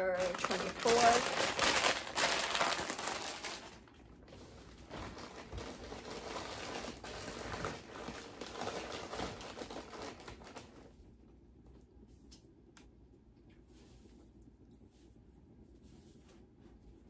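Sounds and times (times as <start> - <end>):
snack bags crinkling: 0.0 - 10.9.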